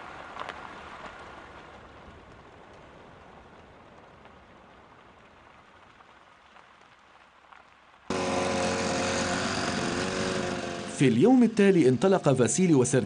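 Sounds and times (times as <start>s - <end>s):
snowmobile engine running: 8.1s - 13.0s.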